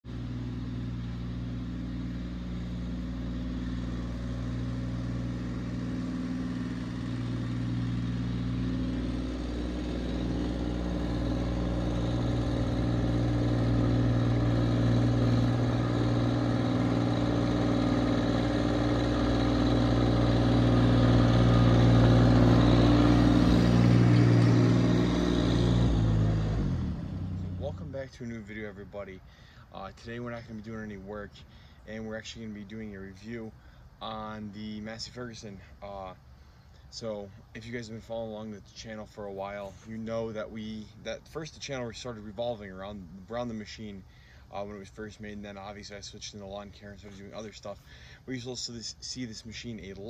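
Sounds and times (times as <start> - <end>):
tractor diesel engine running: 0.0 - 36.4.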